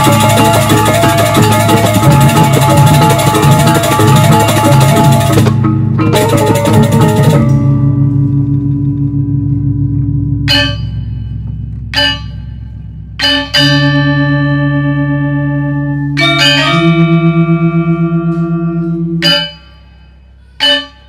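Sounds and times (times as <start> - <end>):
bright metallophone stroke: 0.0 - 21.0
gamelan music: 0.0 - 21.0
long ringing tone: 6.2 - 21.0.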